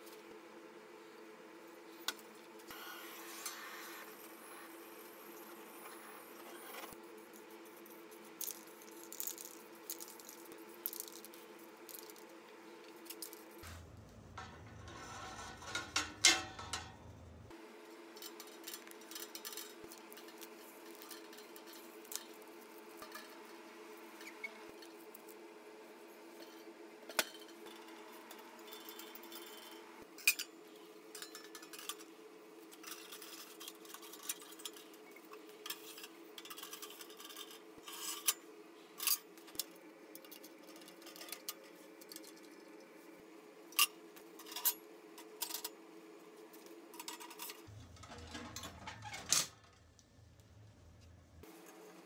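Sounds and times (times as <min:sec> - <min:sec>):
faint hum: 0:00.0 - 0:19.7, 0:47.1 - 0:52.0
metal parts clinking: 0:13.1 - 0:17.3.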